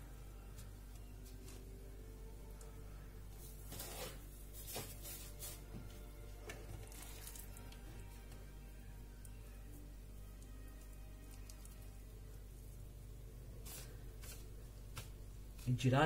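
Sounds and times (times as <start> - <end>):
faint steady background noise: 0.0 - 16.0
hands squishing wet dough: 6.5 - 8.5, 9.2 - 16.0.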